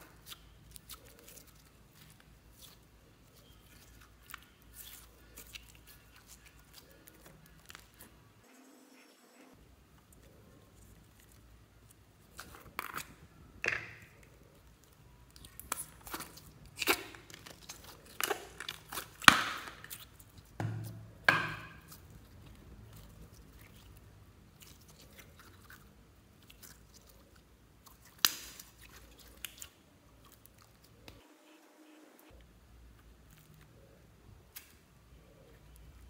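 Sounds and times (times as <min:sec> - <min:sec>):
slime squelching and popping: 0:10.8 - 0:27.2, 0:27.8 - 0:31.2.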